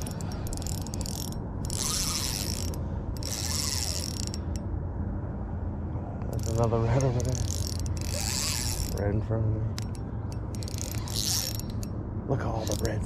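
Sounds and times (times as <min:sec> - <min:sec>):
fishing reel clicking: 0:00.0 - 0:04.6, 0:07.2 - 0:09.0, 0:09.7 - 0:11.9, 0:12.6 - 0:13.0.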